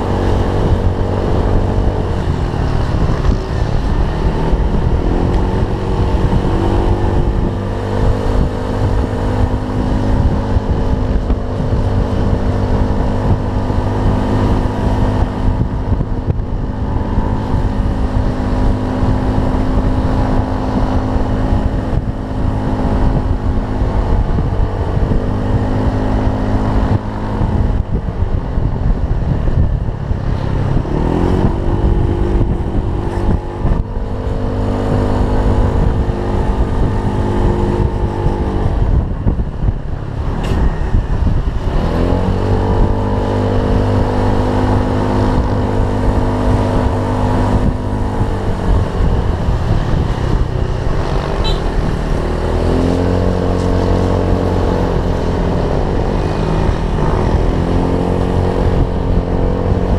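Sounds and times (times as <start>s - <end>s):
scooter engine running: 42.3s - 59.9s.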